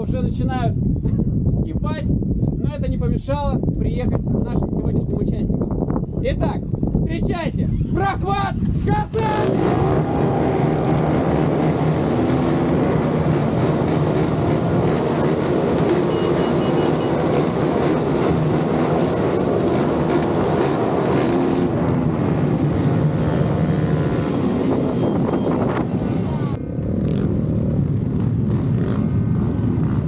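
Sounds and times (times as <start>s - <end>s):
wind buffeting microphone: 0.0s - 26.9s
off-road motorcycle engine: 8.6s - 30.0s.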